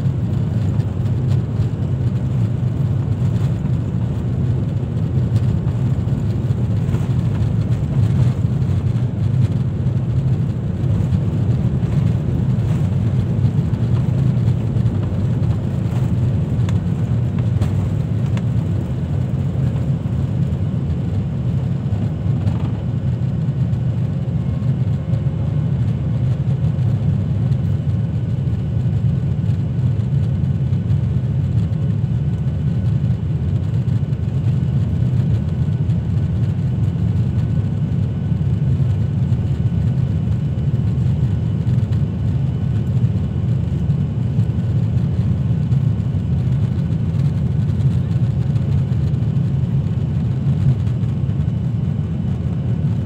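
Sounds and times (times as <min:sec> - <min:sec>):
airflow over fuselage: 0:00.0 - 0:28.6
jet engine low rumble: 0:00.0 - 0:53.0.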